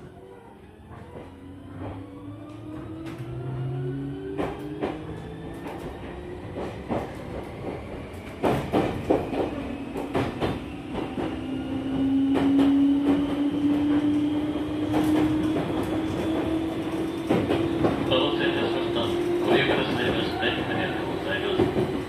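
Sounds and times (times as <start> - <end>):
train wheels knocking on rail joints: 8.4 - 11.4.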